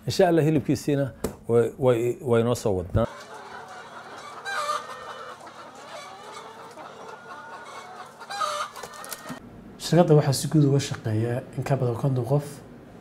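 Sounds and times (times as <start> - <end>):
hens clucking: 3.0 - 9.4.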